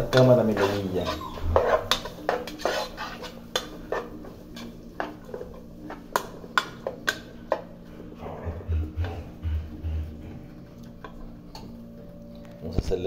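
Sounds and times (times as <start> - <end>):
utensil scraping a frying pan: 0.0 - 7.3.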